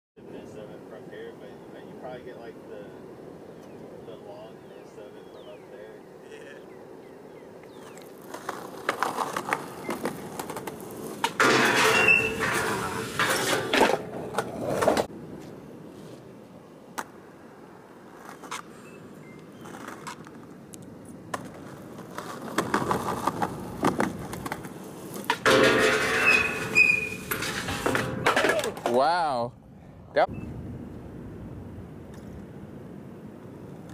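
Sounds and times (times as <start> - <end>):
skateboard wheels rolling on concrete: 0.2 - 33.9
skateboard grinding on metal rail: 8.2 - 15.1, 21.5 - 29.0
metal squeal: 11.4 - 13.7, 25.5 - 28.2.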